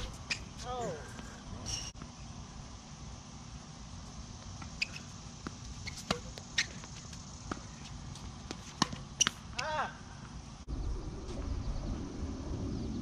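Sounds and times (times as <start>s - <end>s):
tennis racket strikes and bounces: 5.9s - 6.9s, 8.4s - 9.7s.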